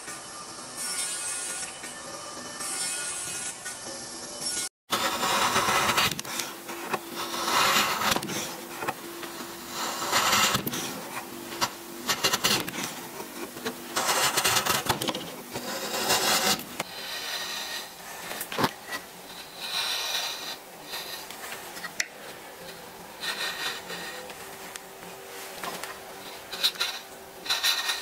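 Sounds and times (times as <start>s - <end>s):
chisel scraping wood: 4.9s - 24.4s, 25.6s - 28.0s.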